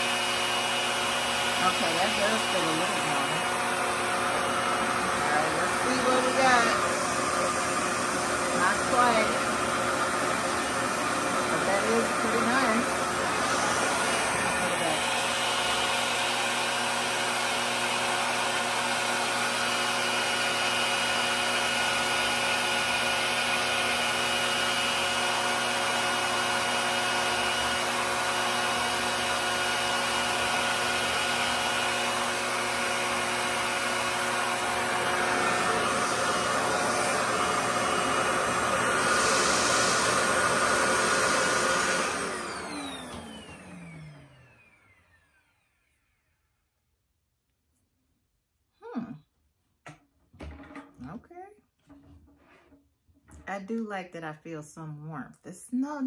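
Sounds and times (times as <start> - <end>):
hair dryer suction fan whining: 0.0 - 46.4.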